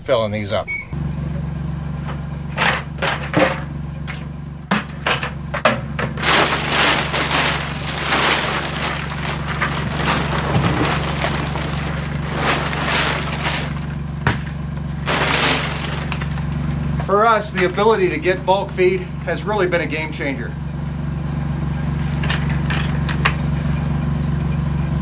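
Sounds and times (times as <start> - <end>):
steady low hum: 0.0 - 22.8
buckets set down: 2.5 - 17.8
feed rattling: 4.8 - 18.2
woven bag rustling: 6.1 - 16.8.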